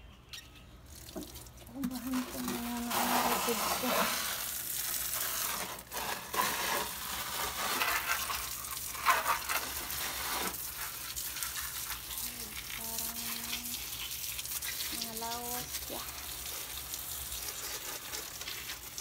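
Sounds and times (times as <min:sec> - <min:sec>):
water pattering on leaves: 0:00.7 - 0:19.0
hose spray hissing: 0:02.1 - 0:08.0.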